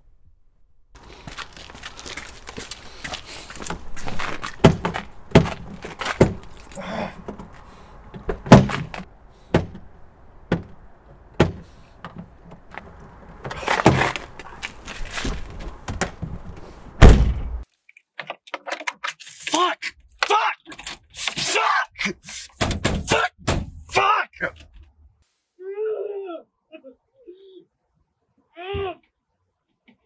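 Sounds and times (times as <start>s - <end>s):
heavy thump: 17.0s - 17.6s.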